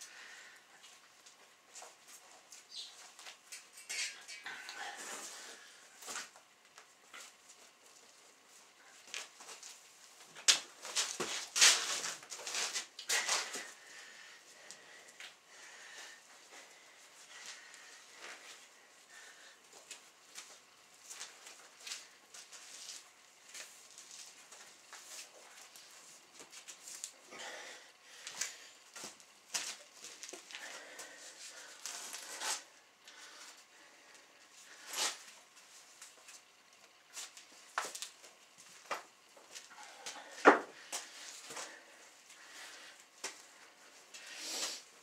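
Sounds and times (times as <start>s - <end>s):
sharp snaps and rustles: 9.0s - 13.7s, 28.2s - 33.6s, 34.8s - 41.8s.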